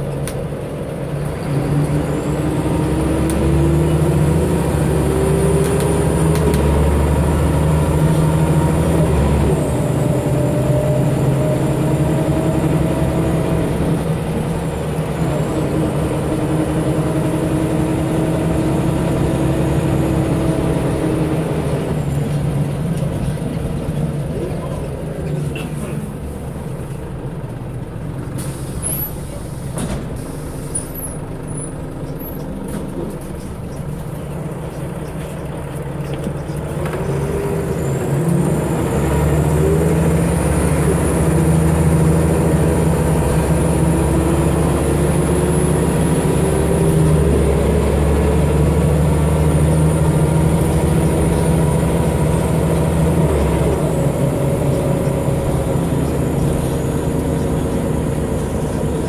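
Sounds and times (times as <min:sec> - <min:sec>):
bus diesel engine: 0:00.0 - 0:59.0
air brake hiss: 0:28.4 - 0:30.9.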